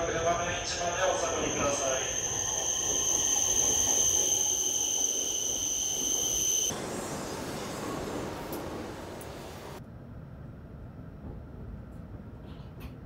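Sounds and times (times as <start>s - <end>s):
train low rumble: 0.0s - 13.0s
high-pitched whine: 0.7s - 8.5s.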